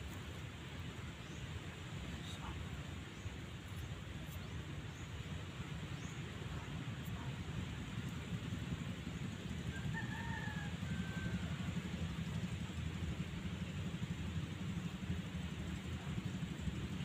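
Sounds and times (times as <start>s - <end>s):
faint rooster crowing: 9.6s - 12.0s.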